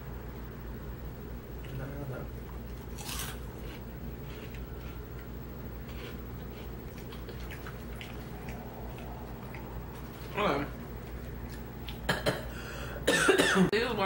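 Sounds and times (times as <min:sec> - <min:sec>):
chewing crunchy snacks: 0:02.4 - 0:10.4.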